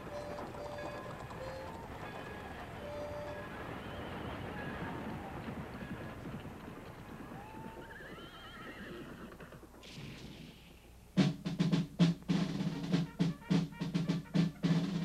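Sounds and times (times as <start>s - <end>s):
horse whinnying: 0.0s - 10.2s
faint background noise: 0.0s - 15.0s
loud sharp drum beats: 11.2s - 15.0s.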